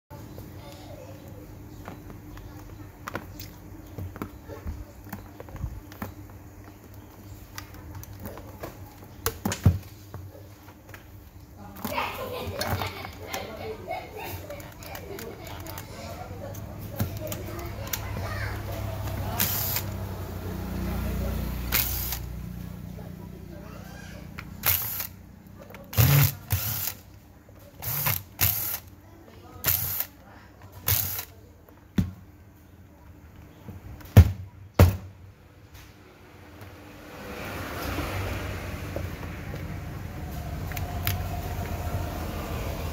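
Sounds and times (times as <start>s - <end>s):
impact driver bursts: 19.4s - 20.0s, 21.7s - 22.3s, 24.6s - 25.2s, 25.9s - 27.0s, 27.8s - 28.9s, 29.6s - 30.1s, 30.8s - 31.3s.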